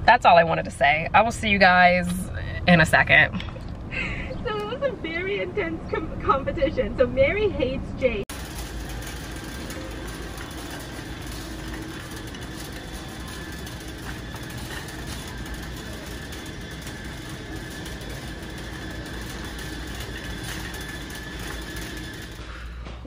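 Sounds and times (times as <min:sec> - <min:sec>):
road noise: 0:00.0 - 0:23.0
car engine drone: 0:08.3 - 0:23.0.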